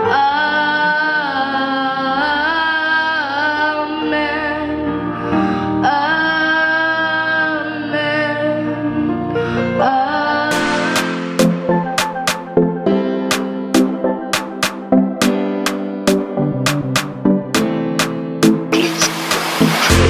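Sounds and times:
girl singing into microphone: 0:00.0 - 0:05.1, 0:05.8 - 0:10.6
backing music: 0:10.5 - 0:20.0
song with sharp beats: 0:10.5 - 0:20.0.

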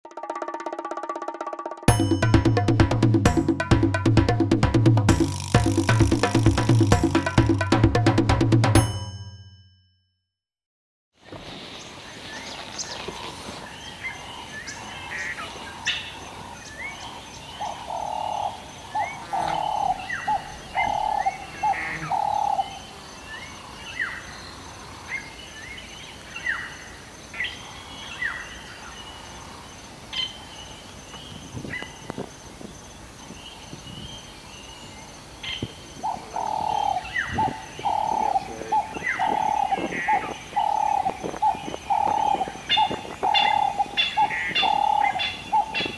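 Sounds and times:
birds chirping and whistling: 0:12.3 - 0:24.6, 0:31.1 - 0:45.9
dove cooing: 0:17.1 - 0:22.9, 0:36.0 - 0:45.9.

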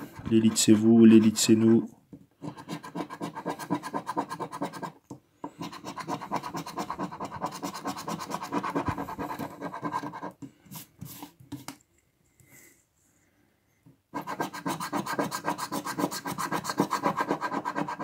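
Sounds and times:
coin scratching lottery ticket: 0:05.6 - 0:10.3, 0:14.2 - 0:18.0.

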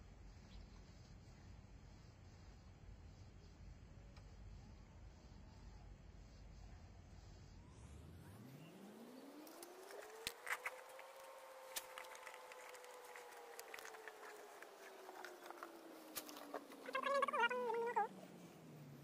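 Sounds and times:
distant engine drone: 0:07.7 - 0:19.0.

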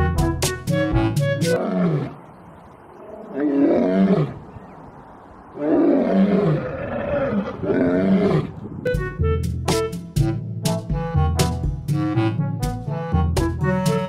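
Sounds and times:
lion roaring: 0:01.5 - 0:02.2, 0:03.0 - 0:04.5, 0:05.5 - 0:08.6.

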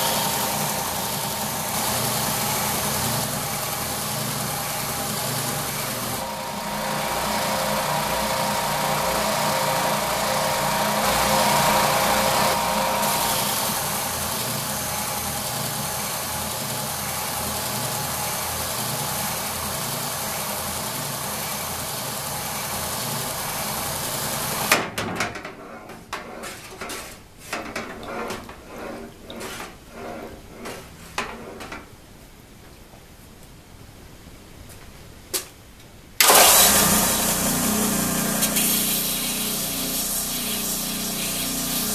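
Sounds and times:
belt sander grinding steel: 0:00.0 - 0:24.7, 0:36.2 - 0:41.9.

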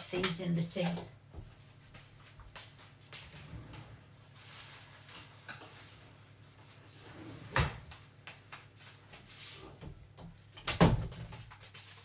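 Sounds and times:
kitchen drawer opening and shutting: 0:03.3 - 0:04.2, 0:06.9 - 0:07.9.

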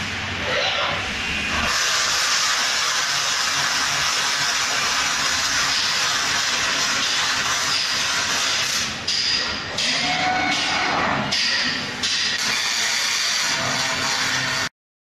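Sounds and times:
arc welder crackling hiss: 0:01.5 - 0:09.5.

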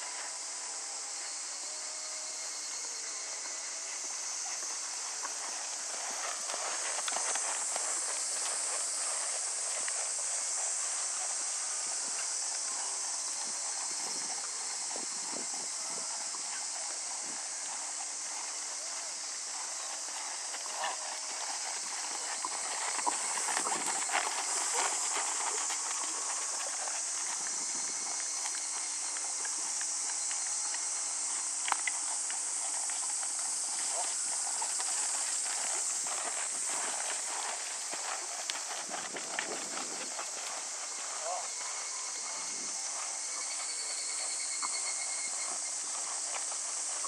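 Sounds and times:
steady high hiss: 0:00.0 - 0:47.0
horse hoofbeats on sand: 0:04.1 - 0:47.0.

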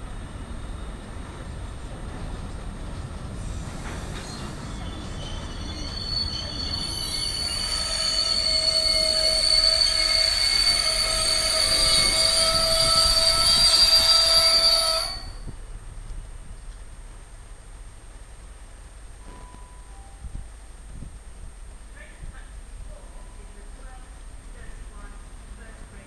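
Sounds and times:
freight wagons rumbling: 0:00.0 - 0:19.3
high-pitched metallic squeal: 0:04.0 - 0:15.5.

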